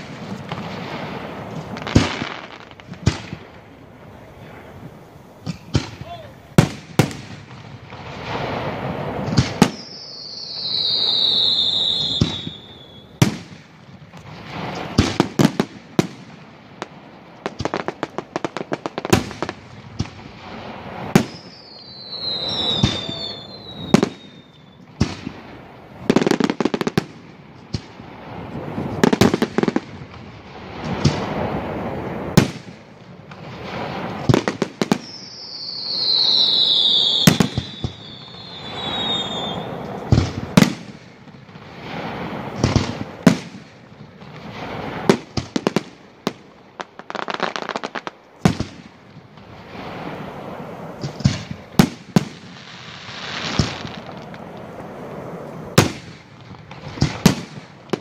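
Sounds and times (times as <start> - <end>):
falling firework whistles: 0.0 - 16.2, 17.5 - 27.1, 30.4 - 58.0
fireworks shells bursting: 4.4 - 15.6, 20.8 - 25.1, 33.3 - 41.1.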